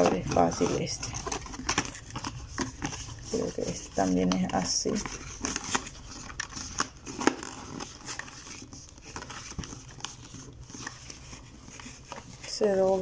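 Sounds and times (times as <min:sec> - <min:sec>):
cardboard box being folded: 0:00.0 - 0:13.0
soft rustles: 0:00.0 - 0:13.0.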